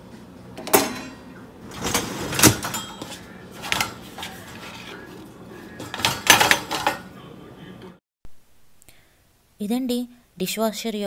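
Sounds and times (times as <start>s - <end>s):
dishwasher racks sliding: 0.6s - 5.0s, 5.7s - 7.0s
dishes and utensils clinking: 0.6s - 7.1s.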